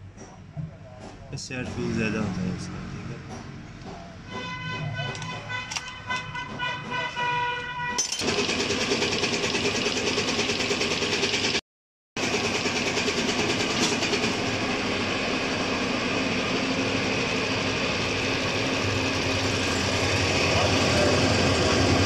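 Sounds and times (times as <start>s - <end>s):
pump test bench pulsing chatter: 0.2s - 7.3s, 20.0s - 22.0s.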